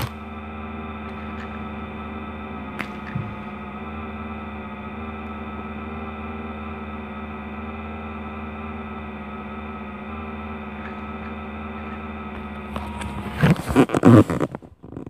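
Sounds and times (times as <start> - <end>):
droning hum: 0.0 - 15.0.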